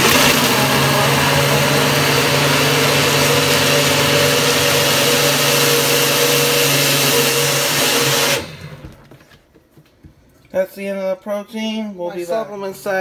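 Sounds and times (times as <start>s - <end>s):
blender running: 0.0s - 9.0s.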